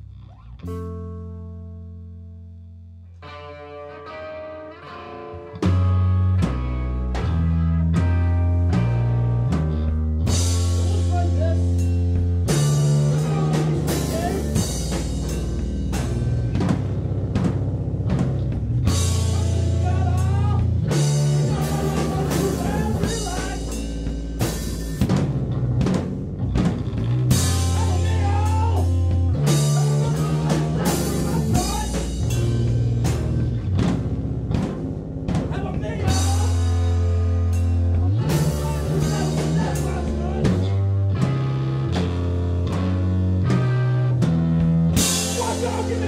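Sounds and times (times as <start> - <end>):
low bass notes: 0.0 - 46.0
rock band playing live: 3.2 - 46.0
drum hits: 10.3 - 41.4, 44.6 - 46.0.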